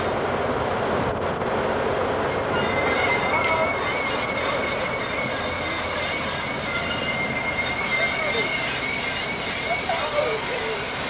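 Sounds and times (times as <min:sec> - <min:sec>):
diesel locomotive rumble: 0:00.0 - 0:11.0
train wheel flange squeal: 0:02.2 - 0:11.0.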